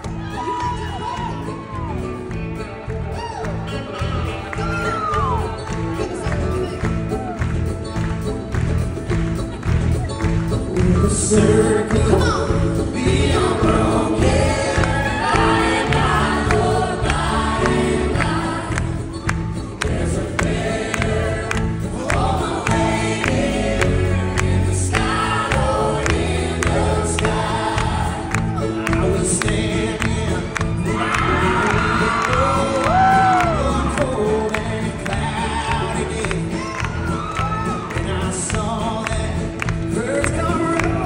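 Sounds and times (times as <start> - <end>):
live country band: 0.0 - 41.0
people singing together: 10.8 - 37.4.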